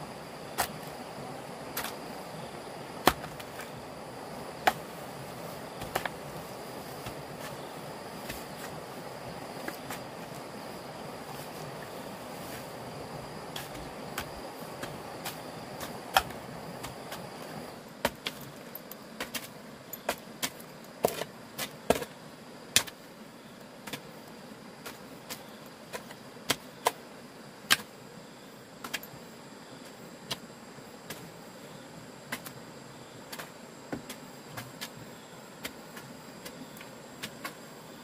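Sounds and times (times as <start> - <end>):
steady background hiss: 0.0 - 38.0.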